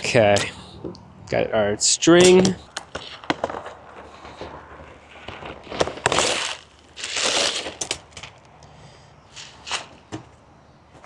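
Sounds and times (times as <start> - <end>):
plastic packaging crinkling: 2.7 - 8.4.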